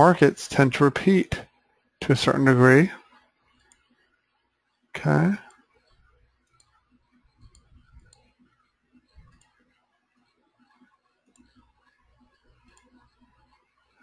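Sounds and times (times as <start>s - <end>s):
faint mouse clicks: 3.5s - 4.0s, 5.4s - 13.6s.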